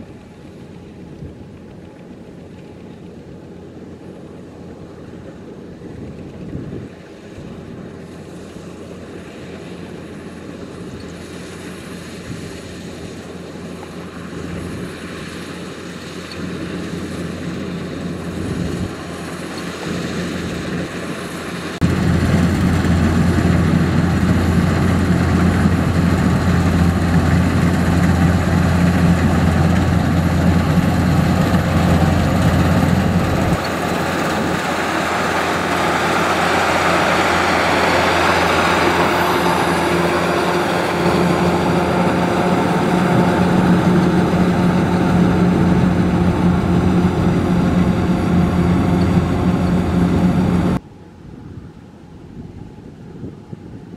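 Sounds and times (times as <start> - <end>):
diesel engine drone: 0.0 - 53.0
threshing machinery whirring: 19.0 - 50.8.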